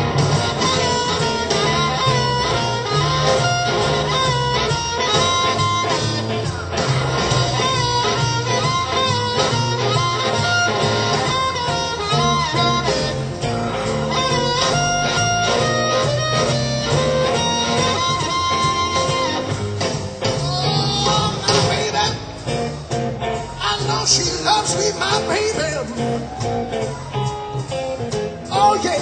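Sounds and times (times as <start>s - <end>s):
amplified harmonica wailing: 0.0s - 21.6s
drums: 0.0s - 29.0s
electric guitar: 0.0s - 29.0s.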